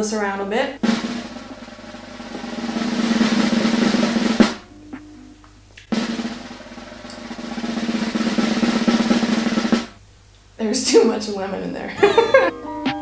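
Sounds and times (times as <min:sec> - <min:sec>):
sharp drum hit: 0:00.8 - 0:04.7, 0:05.9 - 0:10.0
snare drum roll: 0:00.8 - 0:04.7, 0:05.8 - 0:10.0.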